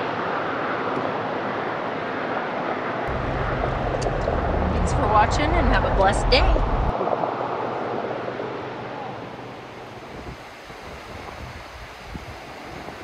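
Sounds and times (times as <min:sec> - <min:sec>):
wind on microphone: 0:03.1 - 0:09.1, 0:10.0 - 0:13.0.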